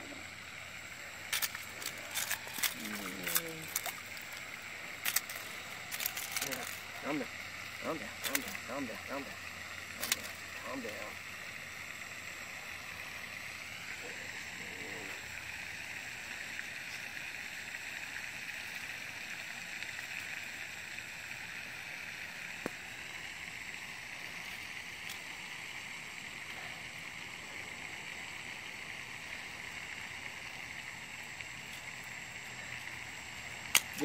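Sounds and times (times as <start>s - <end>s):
high even hiss: 0.0s - 34.0s.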